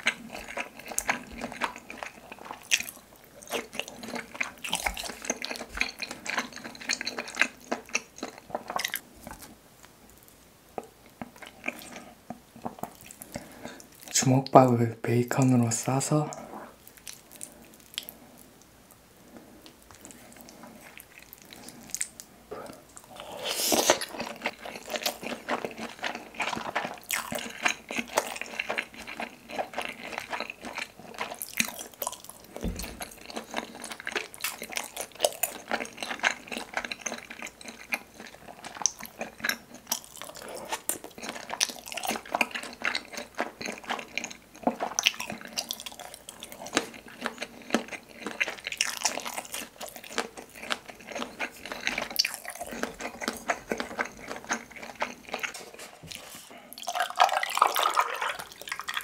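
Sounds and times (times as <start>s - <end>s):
sticky chewing: 0.0s - 10.3s, 19.6s - 59.0s
slurping noodles: 22.6s - 31.3s
low thump: 32.6s - 33.0s.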